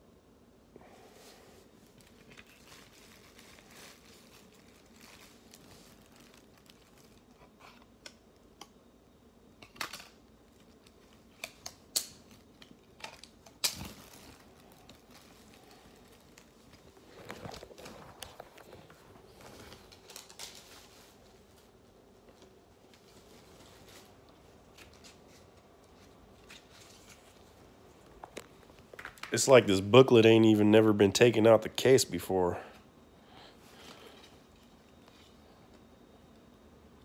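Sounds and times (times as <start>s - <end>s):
plastic wrapping crinkling: 1.4s - 8.5s, 9.6s - 29.6s.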